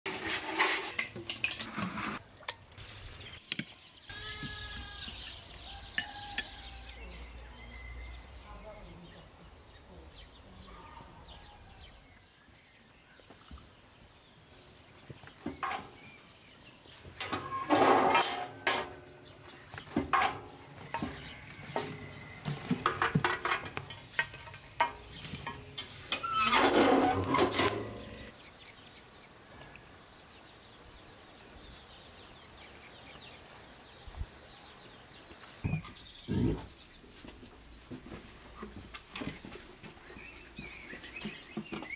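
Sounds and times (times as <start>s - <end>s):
firewood knocking in metal stove: 19.9s - 28.1s.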